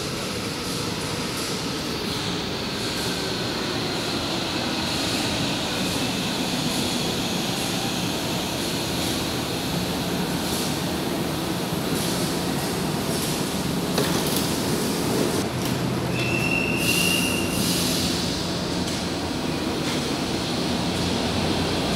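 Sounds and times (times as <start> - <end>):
electric train wheels and motors: 0.0 - 21.9.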